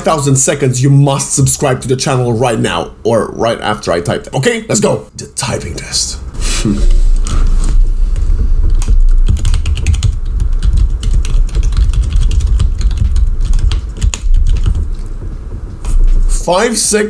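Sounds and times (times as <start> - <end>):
steady low rumble: 5.7 - 17.0
rapid keyboard typing: 8.2 - 16.0.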